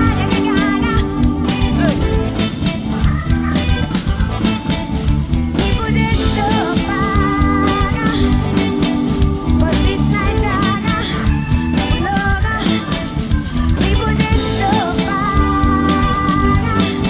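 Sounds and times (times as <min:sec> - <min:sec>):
woman singing: 0:00.0 - 0:04.7, 0:05.6 - 0:17.0
live band playing: 0:00.0 - 0:17.0.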